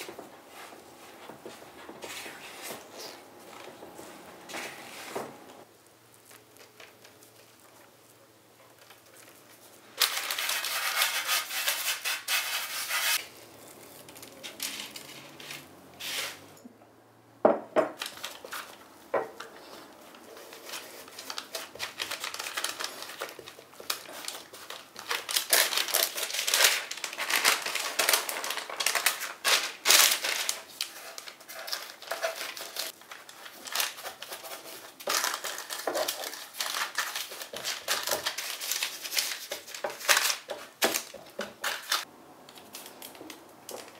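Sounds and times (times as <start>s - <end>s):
baking paper rustling: 0.0s - 16.6s, 18.0s - 43.9s
loud rustling scrape: 3.9s - 5.4s, 10.0s - 16.6s.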